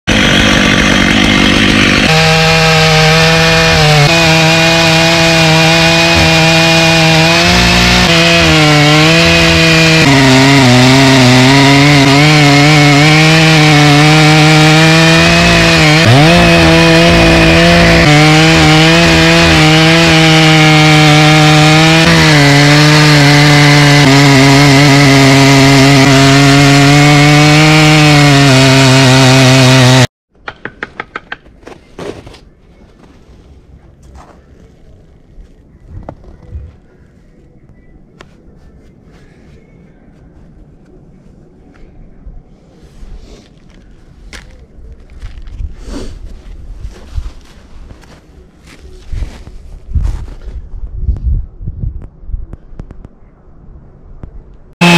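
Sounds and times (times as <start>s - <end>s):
chainsaw cutting through log: 0.1s - 30.1s.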